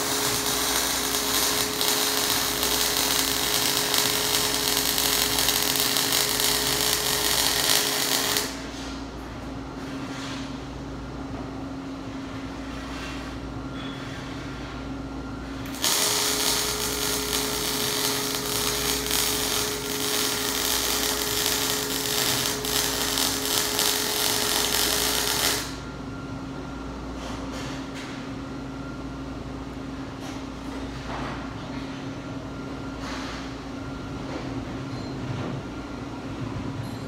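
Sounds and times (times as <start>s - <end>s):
welding arc crackling: 0.0s - 8.6s, 15.6s - 25.8s
constant whine: 15.4s - 26.7s.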